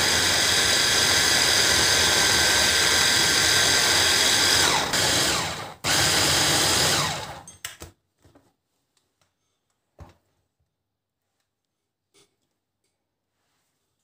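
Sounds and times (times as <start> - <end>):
hand blender motor pulsing: 0.0 - 7.5.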